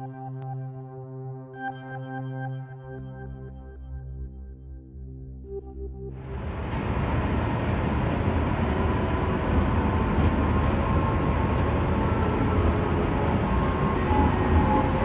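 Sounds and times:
faint whine: 6.2 - 15.0
tram wheels rumbling: 6.2 - 15.0.

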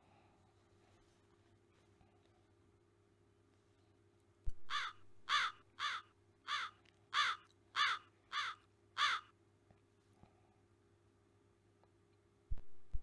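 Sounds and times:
bird calls: 4.7 - 9.3.

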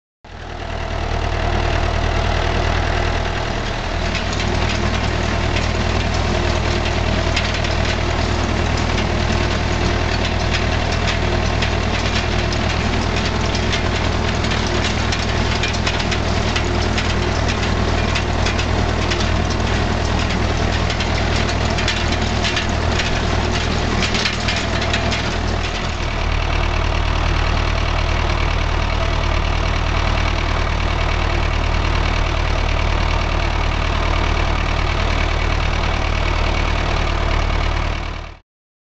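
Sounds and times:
tractor diesel engine running: 0.3 - 38.4
rattling clatter: 3.0 - 29.1.

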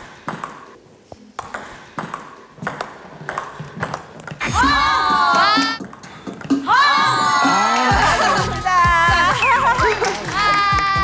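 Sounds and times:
table tennis ball clicking: 1.4 - 4.4.

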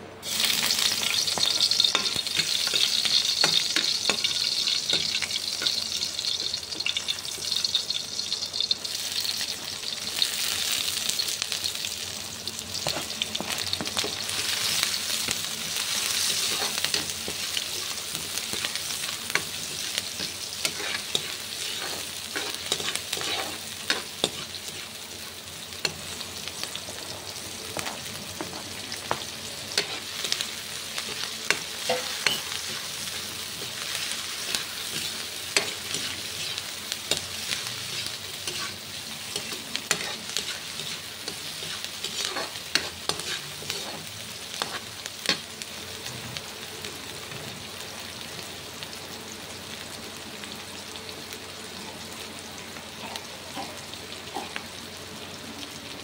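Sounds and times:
vegetables sizzling in oil: 0.0 - 56.0
metal ladle scraping a pan: 20.7 - 24.5.

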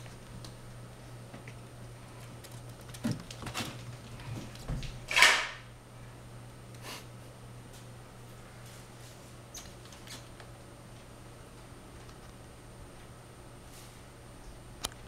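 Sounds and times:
steady low hum: 0.0 - 15.0
cats scuffling on wooden floor: 1.4 - 5.0.

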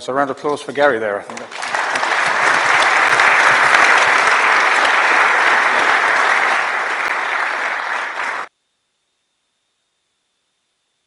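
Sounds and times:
audience applauding: 1.3 - 8.5.

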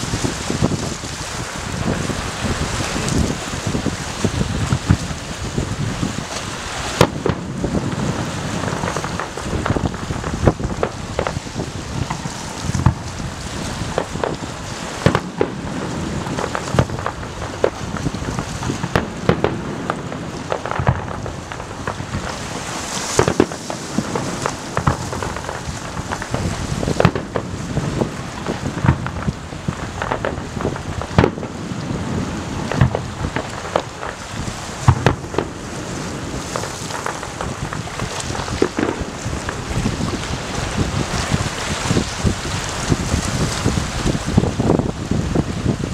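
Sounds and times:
fireworks crackling: 0.0 - 45.9
fireworks shells bursting: 13.9 - 27.5, 32.6 - 40.1.

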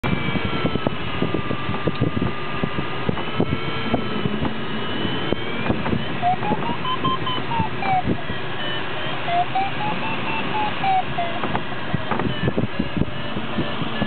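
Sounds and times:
airflow rushing in cockpit: 0.0 - 14.0
electronic tone and rising beeps: 3.2 - 14.0.

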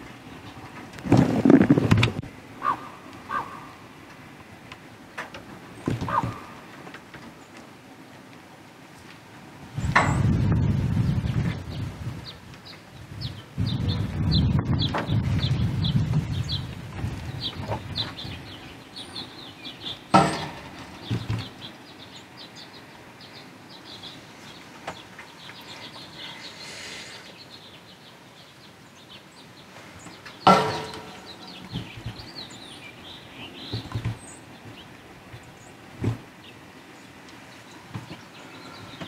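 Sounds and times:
small birds chirping: 2.6 - 3.9, 9.8 - 39.0
horns banging on metal feeder: 20.1 - 20.8, 30.4 - 31.6.

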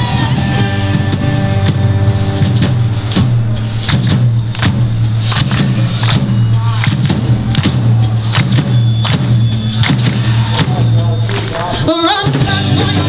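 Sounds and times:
handclaps: 3.1 - 11.9.

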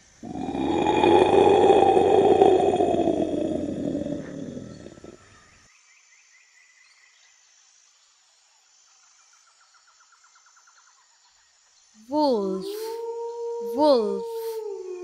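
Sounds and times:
big cat roaring: 0.2 - 5.3.

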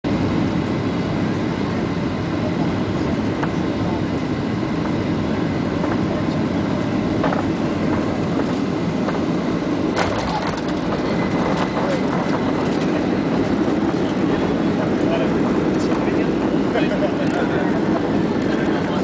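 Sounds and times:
airliner cabin engine noise: 0.0 - 19.0.

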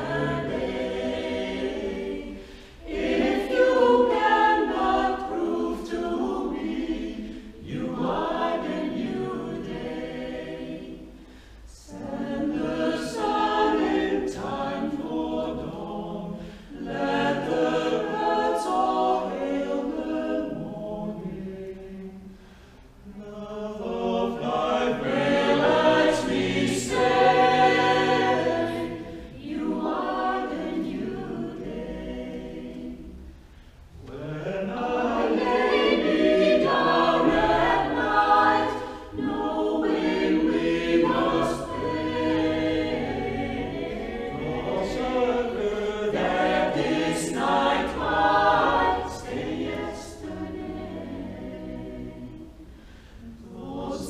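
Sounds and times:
mixed group singing a cappella: 0.0 - 54.0.

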